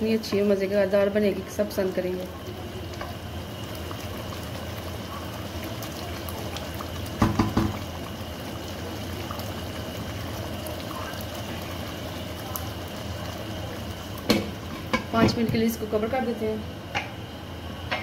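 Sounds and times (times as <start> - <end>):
curry bubbling and sizzling: 0.0 - 18.0
wooden spatula knocking on pan: 7.2 - 7.8.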